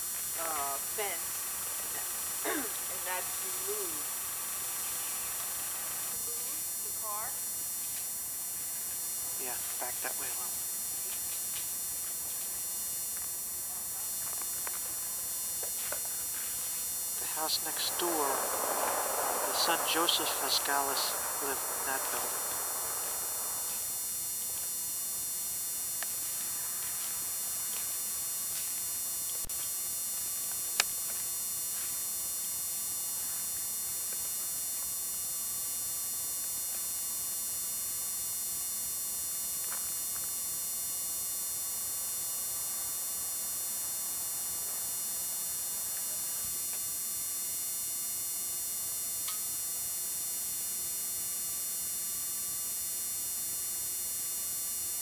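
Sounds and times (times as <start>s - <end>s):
faint steady mid-pitched tone: 0.0s - 7.8s, 13.0s - 24.7s
camcorder hiss and whine: 0.0s - 55.0s.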